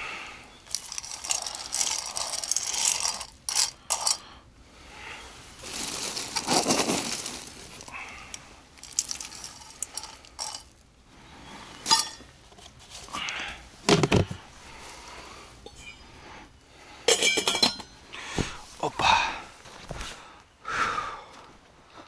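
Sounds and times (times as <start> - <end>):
small objects rustling and scraping: 0.5 - 4.3, 5.2 - 15.1.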